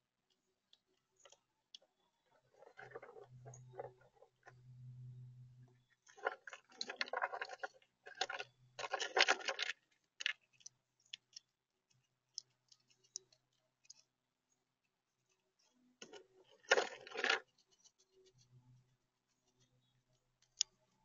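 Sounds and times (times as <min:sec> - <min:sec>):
acorns rattling and scraping: 0:02.5 - 0:04.6, 0:06.0 - 0:11.4, 0:16.0 - 0:18.5.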